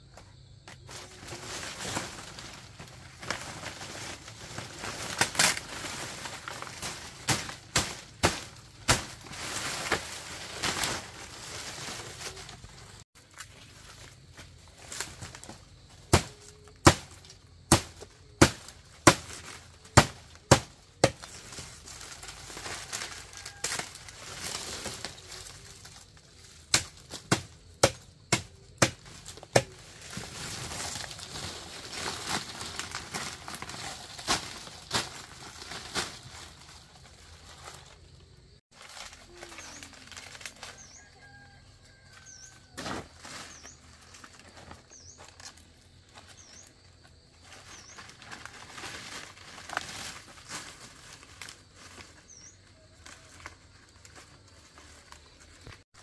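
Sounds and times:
small bird chirping: 52.3s - 53.3s.

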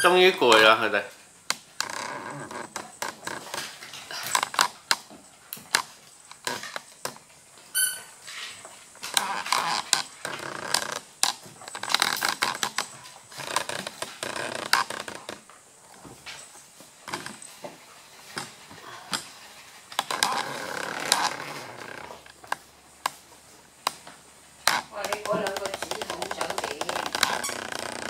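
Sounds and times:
dogs scuffling: 0.0s - 28.0s
dog claws clicking on wood floor: 23.8s - 28.0s.

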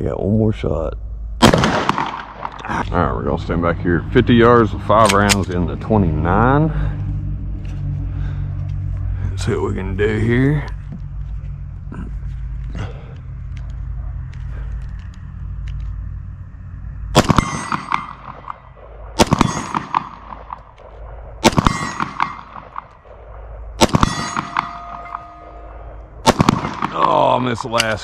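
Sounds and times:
pistol shots: 1.4s - 2.7s, 17.1s - 28.0s.

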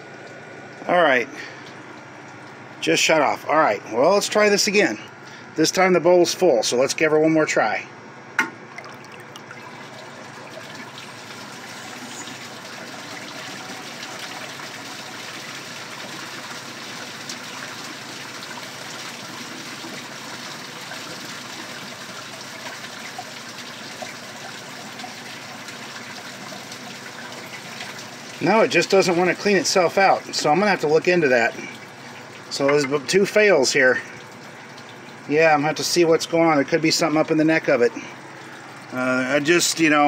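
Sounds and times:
toilet water rushing: 8.4s - 40.0s.

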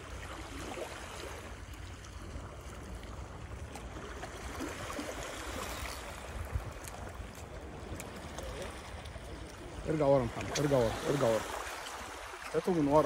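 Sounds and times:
sea water washing: 0.0s - 13.0s
wind rumble on microphone: 2.1s - 10.9s.

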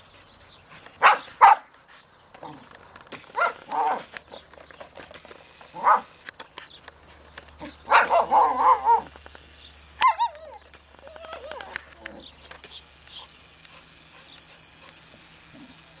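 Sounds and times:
dog barking and growling: 1.0s - 1.7s, 3.3s - 4.2s, 5.7s - 6.1s, 7.6s - 9.2s.

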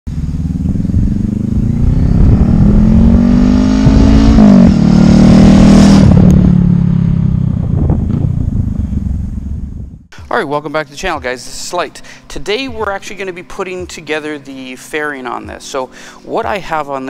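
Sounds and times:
motorcycle engine revving: 0.1s - 10.1s.

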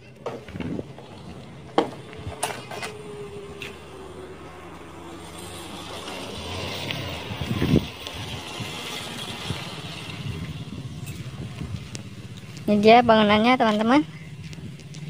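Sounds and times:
motorcycle engine running: 7.1s - 15.0s.

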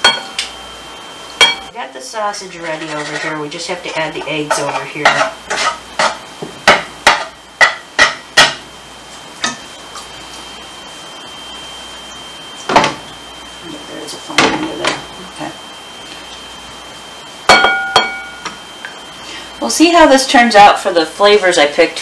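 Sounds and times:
faint high whine: 0.0s - 22.0s
utensil clinking against a dish: 4.2s - 8.5s.

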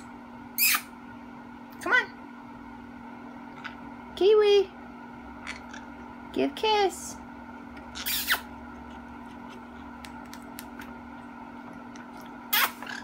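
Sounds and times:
parrot kiss-smack squeaks: 0.6s - 0.9s, 8.0s - 8.5s, 12.5s - 13.0s.

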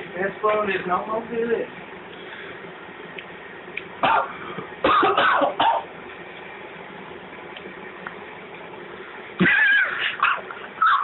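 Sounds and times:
man coughing: 4.0s - 5.9s.

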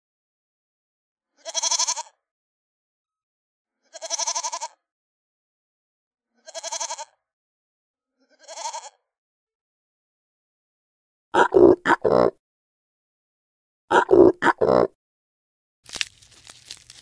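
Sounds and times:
goat bleating: 1.4s - 2.1s, 3.8s - 4.8s, 6.4s - 7.2s, 8.2s - 9.0s, 11.4s - 12.3s.

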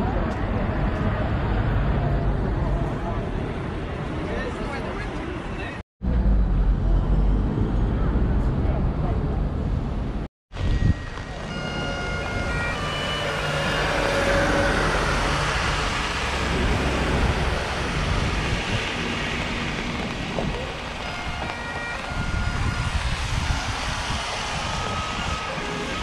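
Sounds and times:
tyres hissing on wet road: 10.6s - 26.0s.

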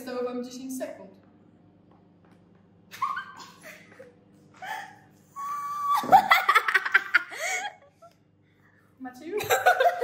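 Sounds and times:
girl's high-pitched squeal: 5.4s - 6.1s.

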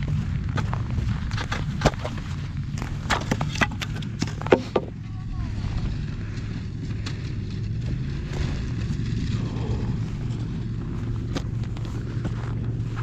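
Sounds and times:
snowmobile engine droning: 4.0s - 13.0s.

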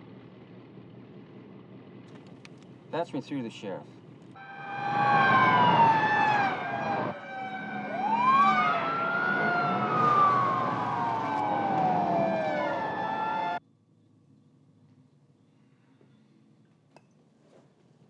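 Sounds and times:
car engines: 0.0s - 16.9s
police sirens wailing: 4.4s - 13.6s.

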